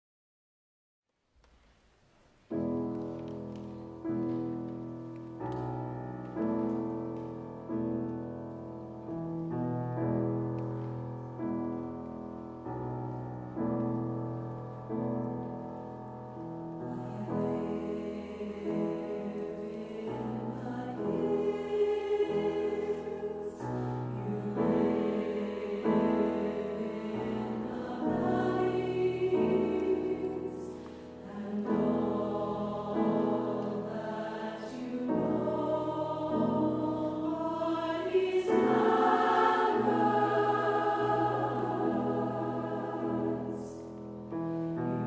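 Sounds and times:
piano chords: 0:02.4 - 0:45.0
women's choir singing: 0:16.7 - 0:44.2.

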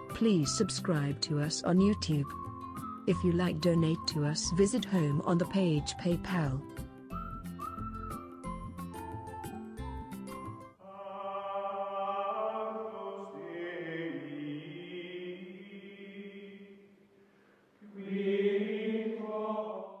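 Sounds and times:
choir singing held chords: 0:10.8 - 0:17.0, 0:17.8 - 0:20.0.

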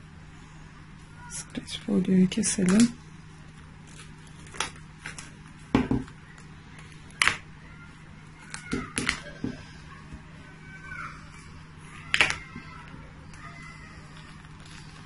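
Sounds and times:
cling film crinkling: 0:02.5 - 0:09.4, 0:11.2 - 0:15.0.

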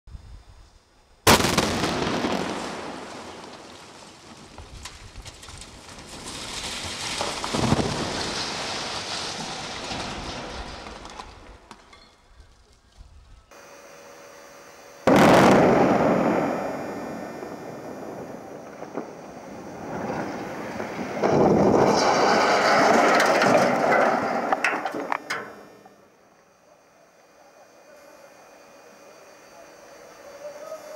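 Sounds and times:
demolition blast crack: 0:01.3 - 0:11.5, 0:15.1 - 0:25.4
rumble of falling masonry: 0:01.3 - 0:12.0, 0:18.2 - 0:25.6
chimney crashing to ground: 0:21.2 - 0:25.6.

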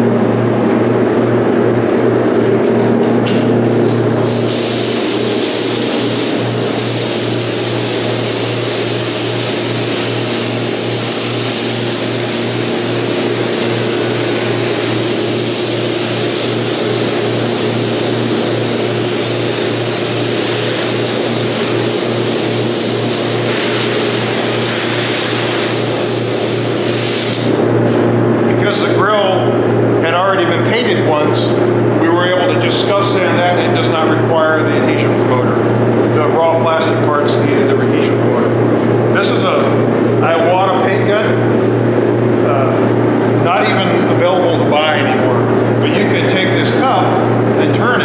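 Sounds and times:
low mechanical hum: 0:00.0 - 0:48.0
spray gun hissing: 0:04.0 - 0:27.6.

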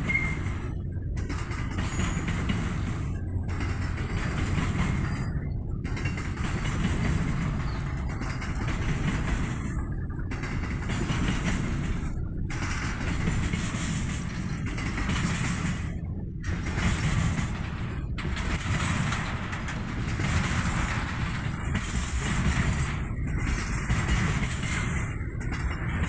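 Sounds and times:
freight train rolling past: 0:00.0 - 0:26.0.

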